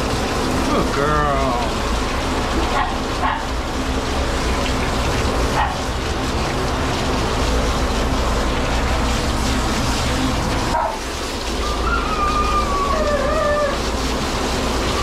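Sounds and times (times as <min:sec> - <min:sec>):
dog crying: 0:11.6 - 0:14.0.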